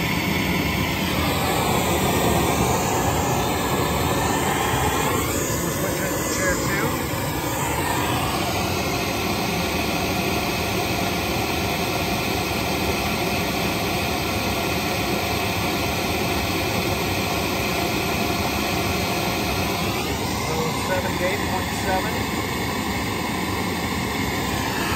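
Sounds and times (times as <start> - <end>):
pink noise hiss from speaker: 1.0 - 8.7, 20.5 - 22.3.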